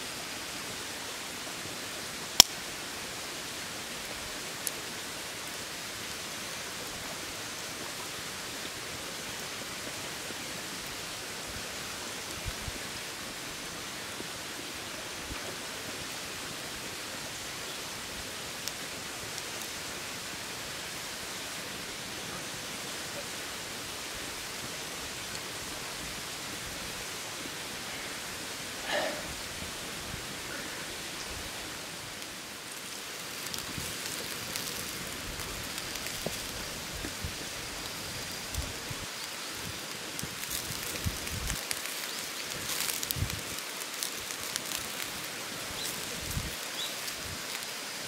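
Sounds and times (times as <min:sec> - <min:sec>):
outdoor background hiss: 0:00.0 - 0:48.0.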